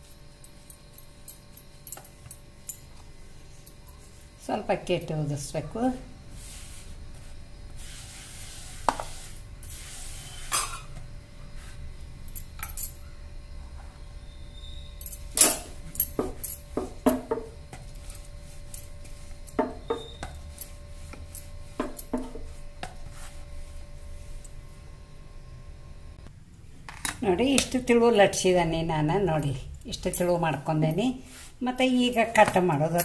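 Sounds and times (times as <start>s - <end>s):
rolling pin rubbing over dough: 6.3s - 10.7s, 17.8s - 24.4s, 31.2s - 33.0s.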